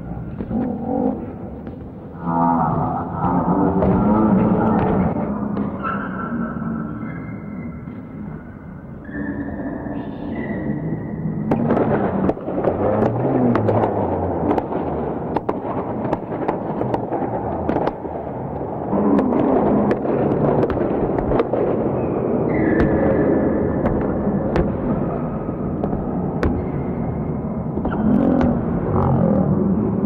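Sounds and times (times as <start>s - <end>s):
ball knocks and pops: 25.8s - 26.8s.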